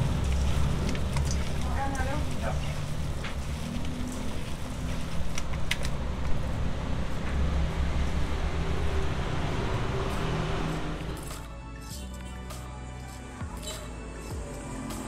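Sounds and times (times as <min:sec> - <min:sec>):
low motor rumble: 0:00.0 - 0:11.6.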